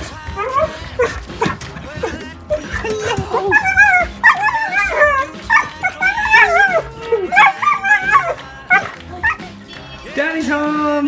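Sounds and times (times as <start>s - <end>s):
dog whining and yipping: 0.0s - 9.6s.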